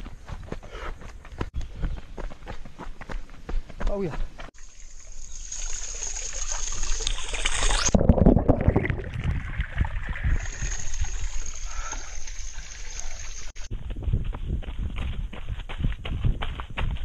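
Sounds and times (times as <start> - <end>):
fountain water splashing: 4.6 - 8.0, 9.7 - 13.6.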